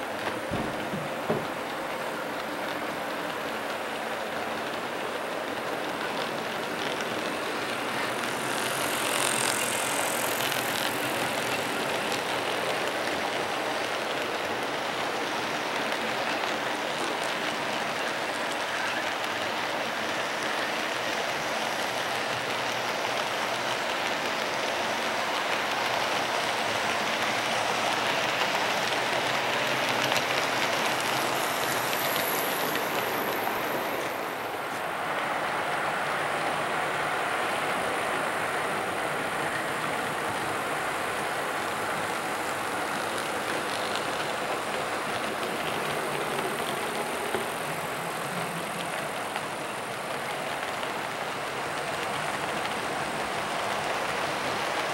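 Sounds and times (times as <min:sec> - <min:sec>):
model train wheels rattling: 0:00.2 - 0:18.6.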